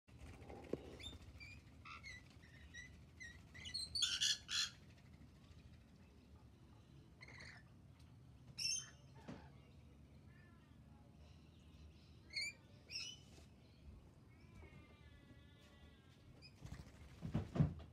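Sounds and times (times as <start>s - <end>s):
parrots chirping and screeching: 0.9s - 4.8s, 7.2s - 7.7s, 8.6s - 9.2s, 12.3s - 13.2s.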